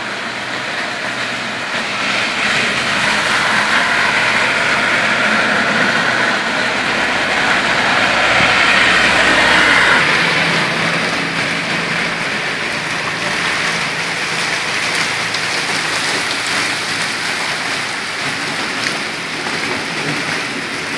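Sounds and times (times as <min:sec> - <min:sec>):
heavy rain on water: 0:00.0 - 0:20.9
tyres swishing through water: 0:00.0 - 0:20.9.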